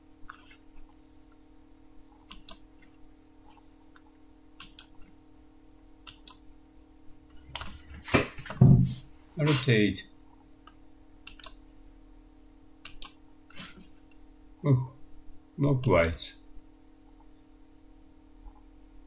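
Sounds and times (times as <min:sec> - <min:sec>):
low electrical hum: 0:00.0 - 0:19.0
computer mouse clicks: 0:02.1 - 0:05.1, 0:06.0 - 0:06.5, 0:10.6 - 0:11.6, 0:12.8 - 0:13.2.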